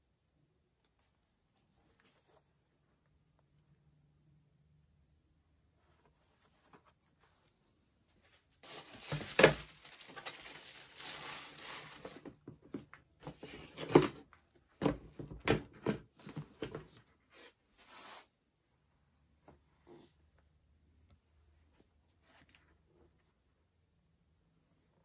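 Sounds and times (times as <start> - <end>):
tissue paper rustling: 8.3 - 12.3.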